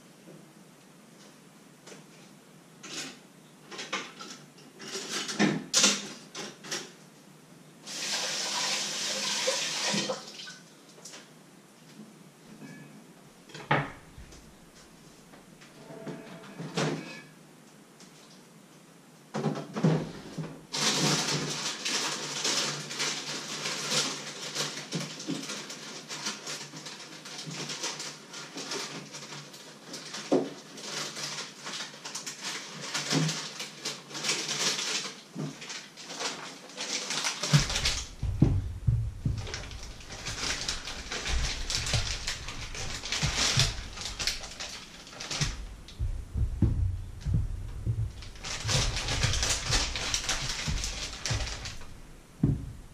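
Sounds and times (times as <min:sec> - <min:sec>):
plastic packaging rustling: 0:20.7 - 0:52.9
heavier bumps: 0:37.5 - 0:52.9.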